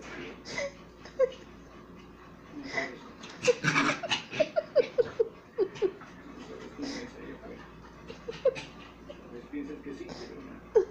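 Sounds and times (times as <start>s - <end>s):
person laughing: 3.5s - 6.0s.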